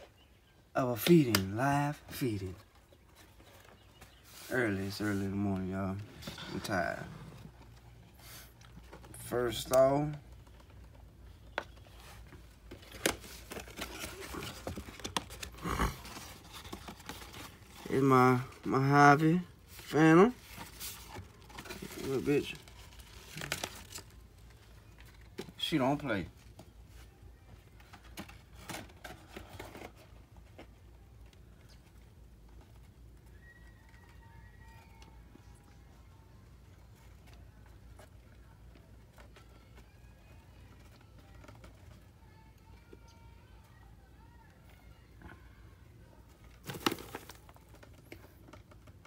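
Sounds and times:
cardboard box crinkling: 0:12.1 - 0:18.7, 0:19.6 - 0:25.3, 0:46.4 - 0:49.0.

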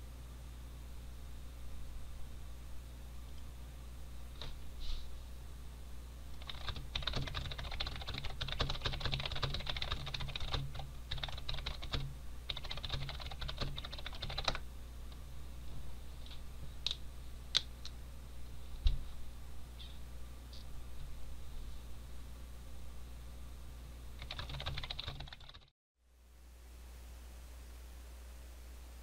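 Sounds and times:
typing on keyboard: 0:06.4 - 0:14.6, 0:24.2 - 0:25.7.

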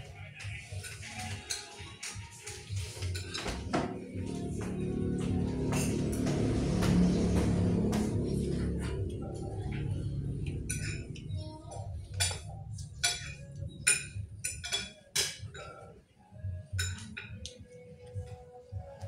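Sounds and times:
low background hum: 0:04.0 - 0:15.8
metal spoon clinking on plate: 0:10.5 - 0:15.7, 0:16.8 - 0:17.4.

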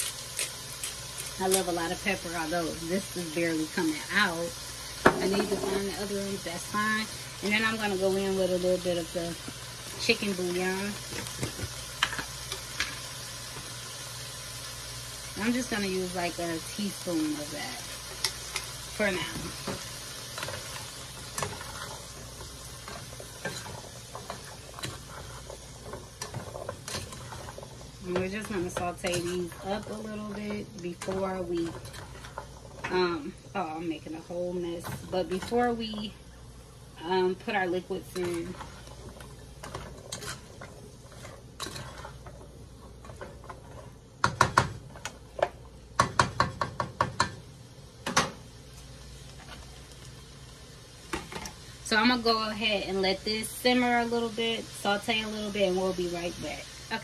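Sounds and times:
vegetables sizzling in a pan: 0:00.0 - 0:57.0
spatula scraping a pan: 0:17.9 - 0:33.1, 0:37.4 - 0:45.5.

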